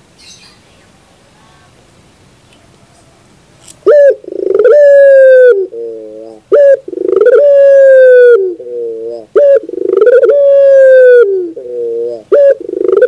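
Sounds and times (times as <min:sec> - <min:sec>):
dove cooing: 0:03.8 - 0:13.0.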